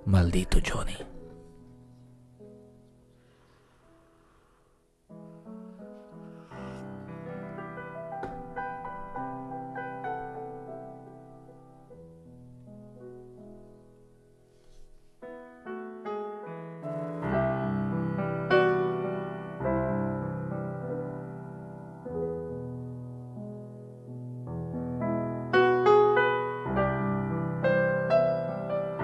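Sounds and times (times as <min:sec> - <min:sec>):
slow piano music: 0:00.0 - 0:29.0.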